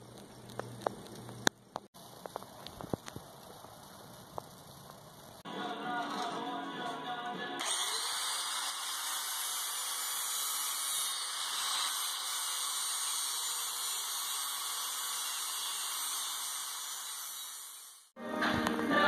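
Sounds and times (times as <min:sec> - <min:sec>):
angle grinder grinding steel: 0:05.4 - 0:18.2.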